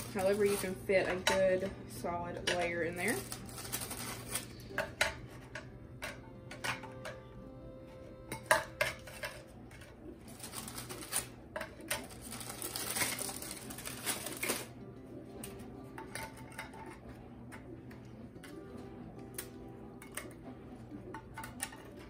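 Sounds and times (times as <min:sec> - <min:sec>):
cracker packet rustling: 0:00.0 - 0:00.9, 0:03.0 - 0:04.8, 0:09.1 - 0:14.8.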